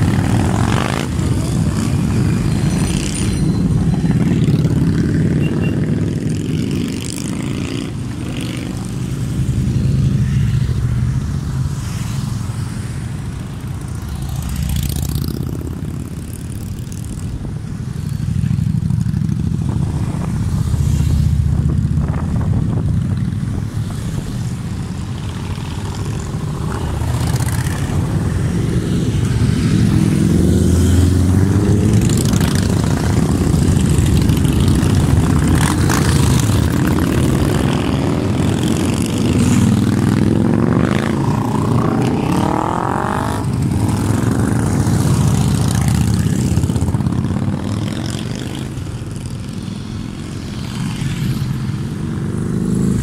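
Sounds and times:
motorcycle engine revving: 0.0s - 10.7s, 25.3s - 49.6s
motorcycles rumbling past: 0.0s - 53.0s.

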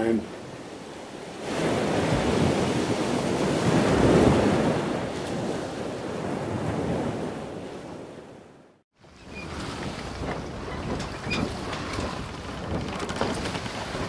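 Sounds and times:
ocean waves breaking: 0.0s - 14.0s.

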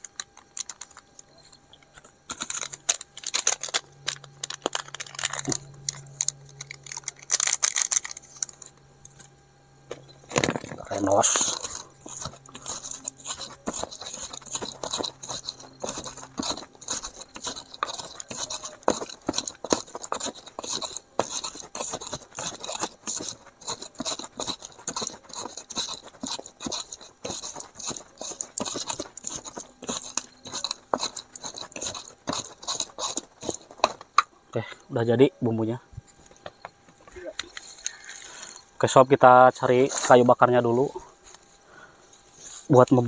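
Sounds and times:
spices ground in a mortar: 0.0s - 9.2s, 10.2s - 34.2s.

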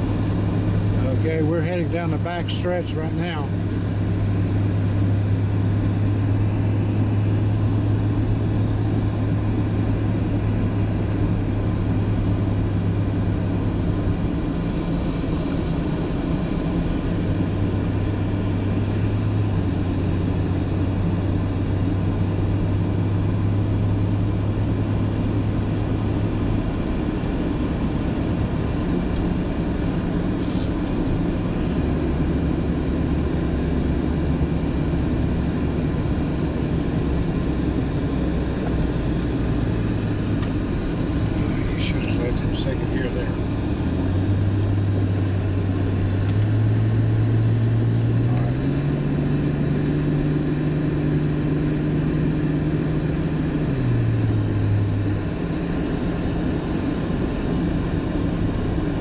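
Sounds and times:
car engine and tyre drone: 0.0s - 59.0s.

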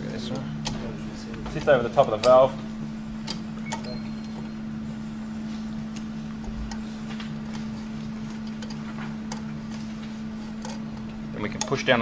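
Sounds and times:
steady low hum: 0.0s - 12.0s
metal clicks and taps: 1.6s - 2.4s.

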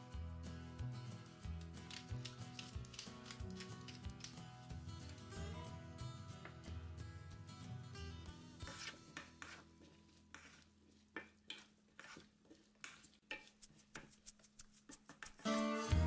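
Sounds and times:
wooden spoon scraping a pan: 8.6s - 15.6s.

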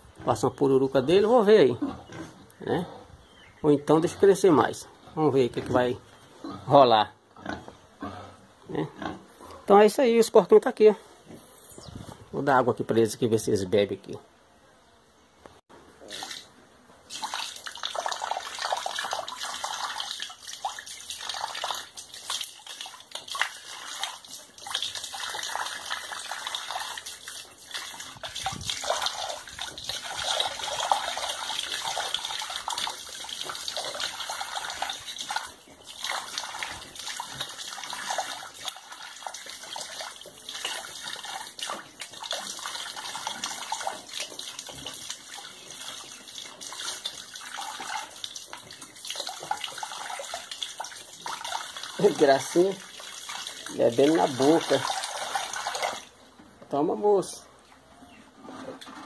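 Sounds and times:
water running and splashing: 17.1s - 56.2s.

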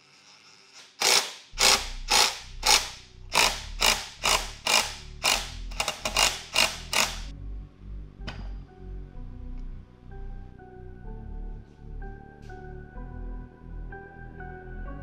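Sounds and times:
hand ratchet clicking: 0.4s - 7.3s.

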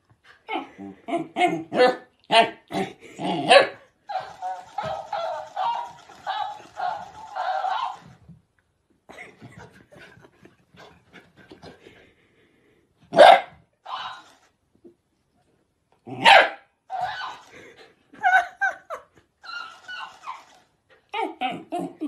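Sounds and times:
dog barking: 1.4s - 2.6s, 3.5s - 8.0s, 13.1s - 14.2s, 16.2s - 17.3s
toy squeaky bark playback: 4.1s - 8.2s, 13.9s - 14.4s, 19.4s - 20.6s.

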